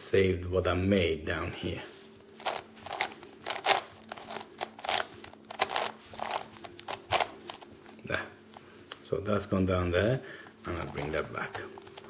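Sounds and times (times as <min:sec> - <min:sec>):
plastic puzzle cube clicking: 0:02.5 - 0:07.6.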